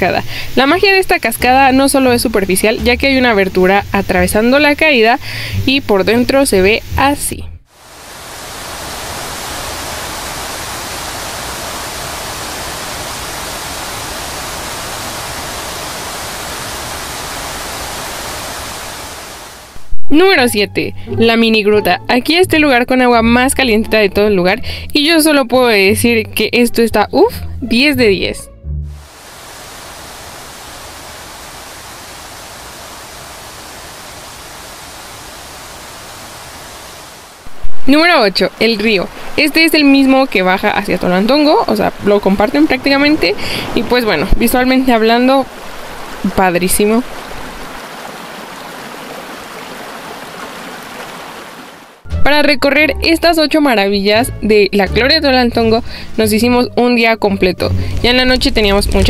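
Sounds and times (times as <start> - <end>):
waterfall rushing: 7.7 - 19.9, 29.0 - 52.0.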